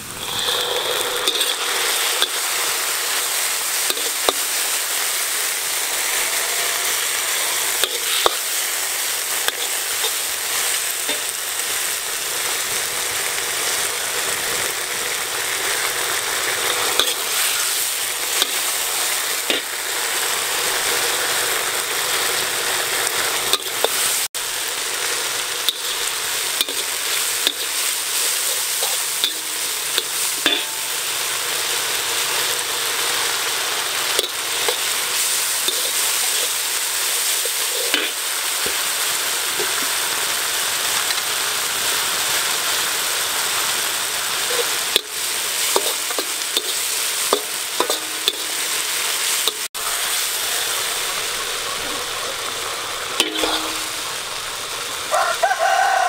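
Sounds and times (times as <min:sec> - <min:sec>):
spatula scraping wok: 0:00.0 - 0:54.9
food sizzling in hot oil: 0:00.0 - 0:56.0
spatula tapping pan: 0:45.7 - 0:48.5.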